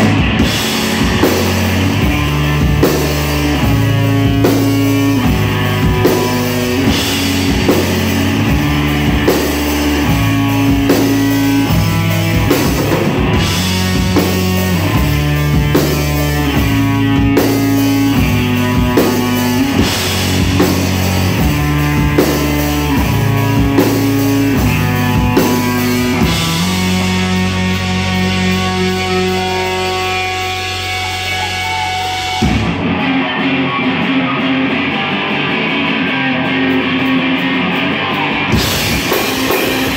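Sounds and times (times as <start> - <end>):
drum kit hits: 0.0 - 30.3
electric guitars: 0.0 - 39.9
low bass line: 0.0 - 39.9.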